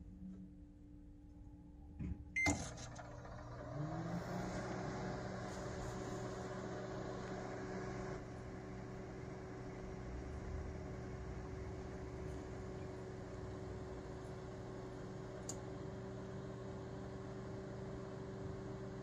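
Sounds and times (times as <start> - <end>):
microwave oven humming: 0.0 - 19.0
short beep: 2.4 - 2.7.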